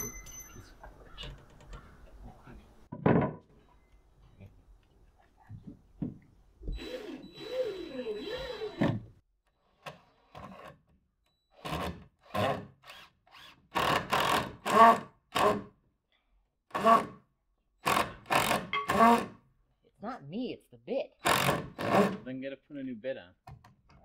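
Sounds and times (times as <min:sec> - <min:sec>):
cordless drill whining: 0:06.6 - 0:09.0.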